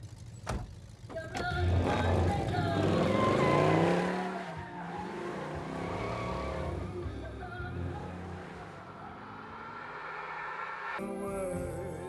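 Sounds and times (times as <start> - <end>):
car engine accelerating: 0.0 - 11.0.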